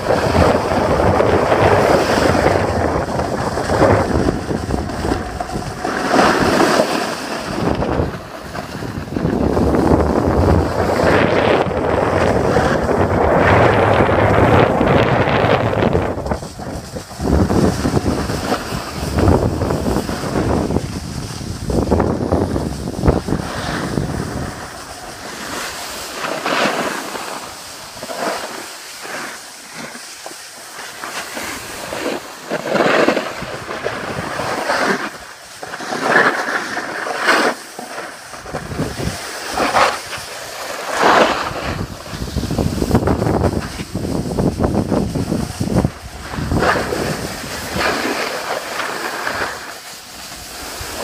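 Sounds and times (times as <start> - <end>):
wind buffeting microphone: 0.0 - 26.6, 32.8 - 35.4, 38.2 - 51.0
skis scraping over packed snow: 0.0 - 51.0.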